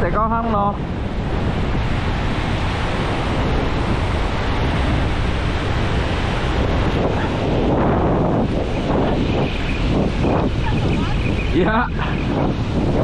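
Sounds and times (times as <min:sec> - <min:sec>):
ocean surf washing in: 0:00.0 - 0:13.0
wind on microphone: 0:00.0 - 0:13.0.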